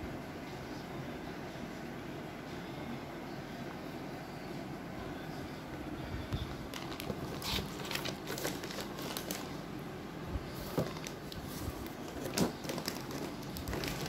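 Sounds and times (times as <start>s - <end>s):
packaging clicks and rustles: 6.7s - 9.6s, 10.6s - 14.0s.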